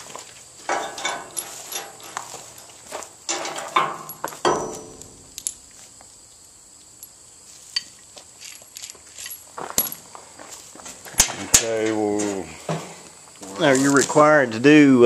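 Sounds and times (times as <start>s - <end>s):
metal tools clinking and scraping: 0.6s - 5.8s, 7.0s - 10.1s, 11.1s - 14.1s.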